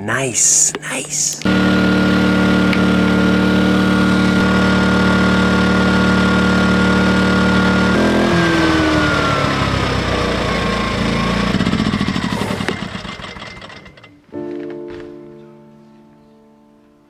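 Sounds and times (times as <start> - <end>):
guitar music: 1.2 - 6.9, 14.1 - 17.0
heat gun fan whine winding down: 1.4 - 14.2.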